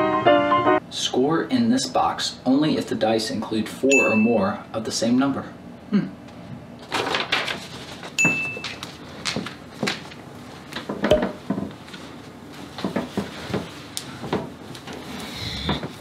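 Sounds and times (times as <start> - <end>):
high-pitched tone: 11.1 - 11.3.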